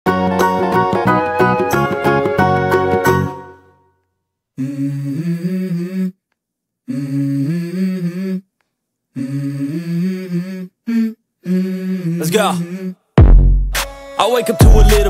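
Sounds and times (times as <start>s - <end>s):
person humming a melody: 4.6s - 6.2s, 6.9s - 8.5s, 9.2s - 13.0s.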